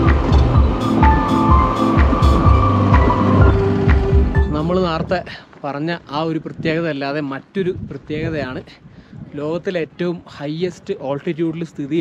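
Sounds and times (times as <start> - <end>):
background music with drum beat: 0.0 - 5.2.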